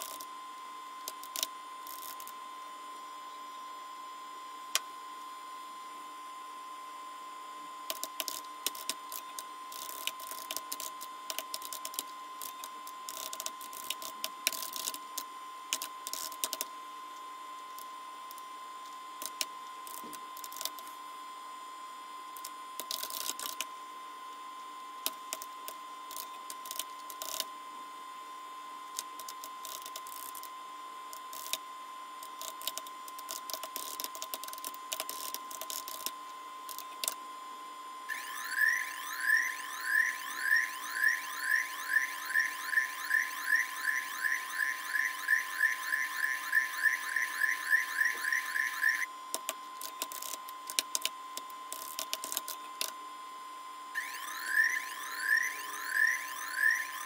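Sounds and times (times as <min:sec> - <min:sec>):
high-pitched hum: 0:38.0 - 0:49.2, 0:53.9 - 0:57.0.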